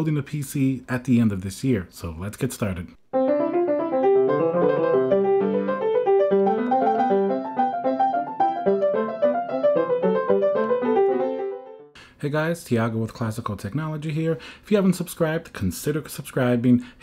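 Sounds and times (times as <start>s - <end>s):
piano music: 3.2s - 12.0s.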